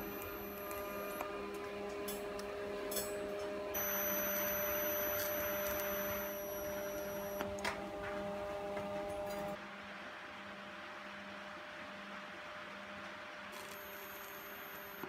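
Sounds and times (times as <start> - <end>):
welding arc hissing and whining: 0.0 - 1.2, 3.8 - 7.4, 13.6 - 15.0
low electrical hum: 0.0 - 15.0.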